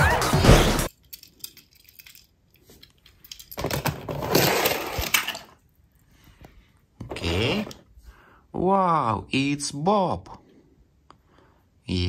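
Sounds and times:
metal toy cars clattering: 0.9s - 5.7s.

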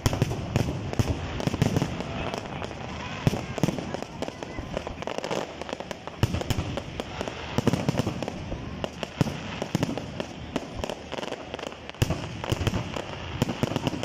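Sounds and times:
fireworks bangs: 0.0s - 14.0s
fireworks crackling: 0.0s - 14.0s.

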